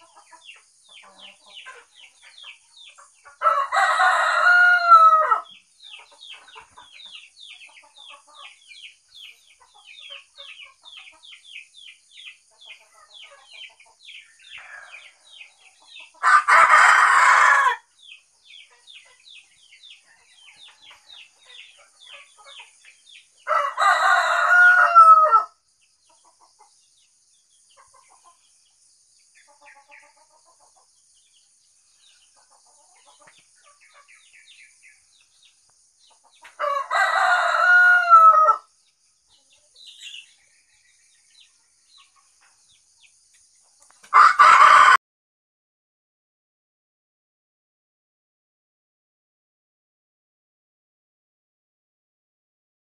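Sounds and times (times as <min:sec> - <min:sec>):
rooster crowing: 0:03.4 - 0:05.5, 0:14.5 - 0:15.4, 0:16.2 - 0:17.9, 0:23.4 - 0:25.5, 0:36.6 - 0:38.7, 0:44.1 - 0:45.0.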